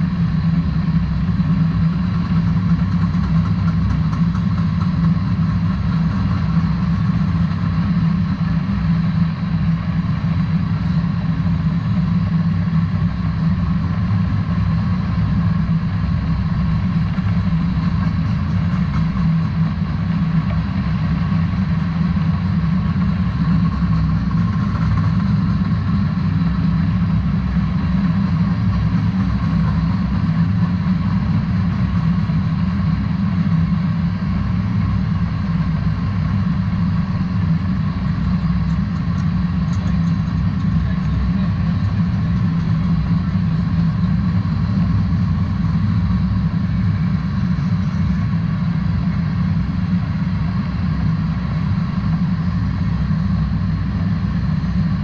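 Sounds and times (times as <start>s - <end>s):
train wheels rumbling on rail: 1.8s - 8.7s, 13.5s - 32.0s.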